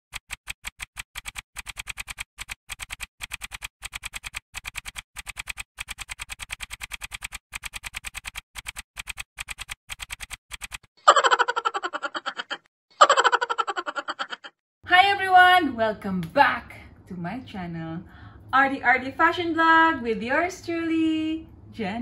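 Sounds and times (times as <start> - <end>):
rapid typing clicks: 0.1 - 10.9.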